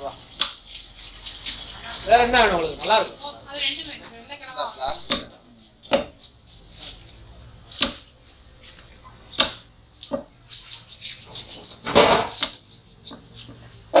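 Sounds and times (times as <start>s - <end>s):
cleaver chopping on wooden block: 5.9s - 6.2s, 7.8s - 8.0s.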